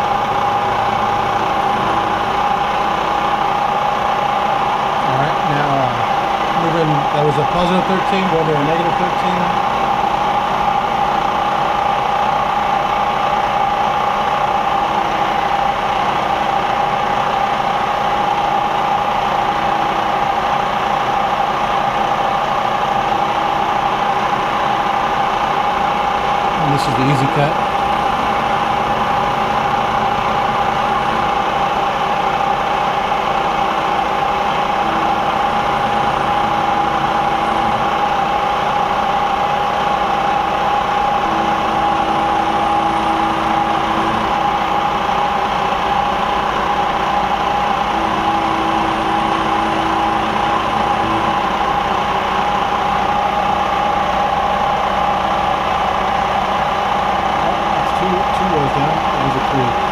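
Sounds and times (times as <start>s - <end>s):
milling machine cutting metal: 0.0s - 12.0s, 26.3s - 55.8s, 56.5s - 59.9s
steady machine whine: 0.0s - 59.9s.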